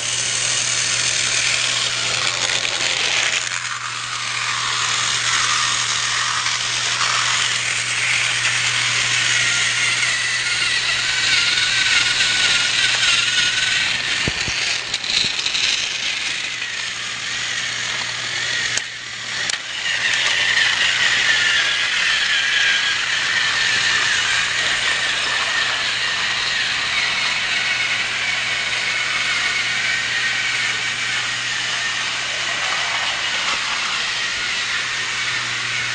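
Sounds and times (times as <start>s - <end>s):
toy train motor whirring: 0.0s - 35.9s.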